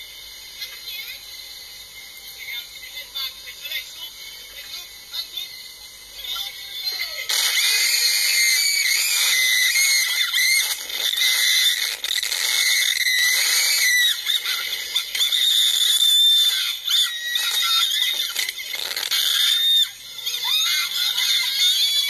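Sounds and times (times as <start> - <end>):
women screaming: 7.3 - 22.0.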